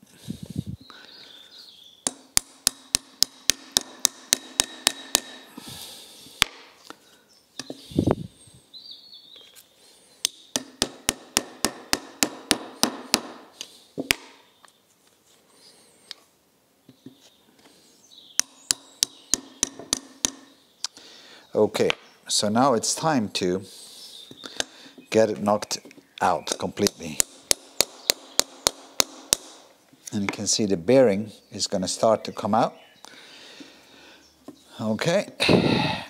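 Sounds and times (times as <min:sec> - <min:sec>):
mallet tapping metal: 0:02.0 - 0:05.4, 0:10.5 - 0:13.4, 0:18.4 - 0:20.6, 0:26.8 - 0:29.6.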